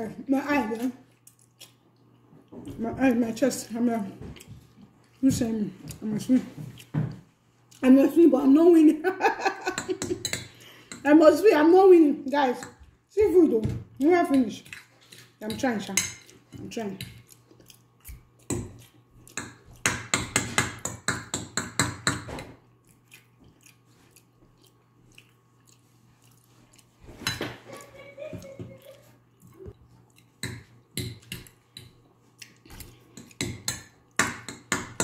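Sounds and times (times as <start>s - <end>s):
chewing: 0.7s - 2.8s, 5.8s - 7.9s, 16.1s - 19.9s, 22.6s - 34.2s.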